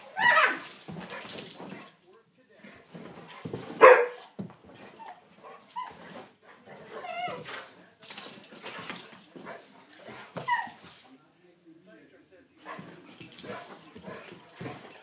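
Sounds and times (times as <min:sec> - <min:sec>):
dogs scuffling: 0:00.0 - 0:11.1, 0:12.6 - 0:15.0
dog bark-like cry: 0:00.2 - 0:00.6
dog whines and yips: 0:00.2 - 0:00.7, 0:07.0 - 0:07.5, 0:10.4 - 0:10.8.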